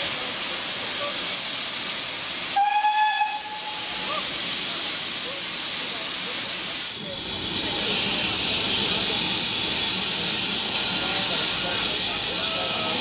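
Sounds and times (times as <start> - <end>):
steam locomotive hissing: 0.0 - 13.0
steam whistle blast: 2.6 - 4.0.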